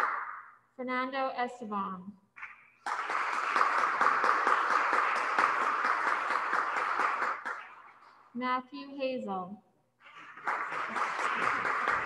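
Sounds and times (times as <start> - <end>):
people applauding: 2.8 - 8.1, 10.0 - 12.0.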